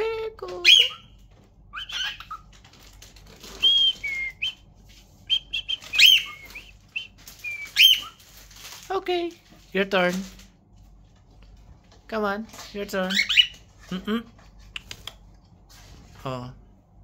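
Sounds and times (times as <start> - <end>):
cockatiel whistling and chirping: 0.6 - 1.1, 1.7 - 2.4, 3.5 - 4.6, 5.3 - 8.2, 13.1 - 13.6.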